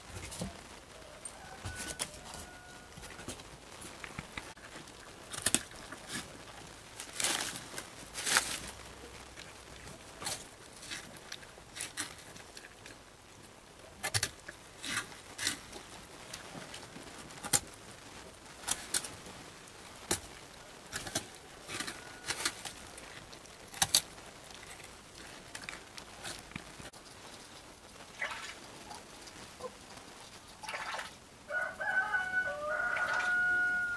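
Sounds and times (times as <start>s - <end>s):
goat chewing crunchily: 1.4s - 13.0s, 20.0s - 27.7s.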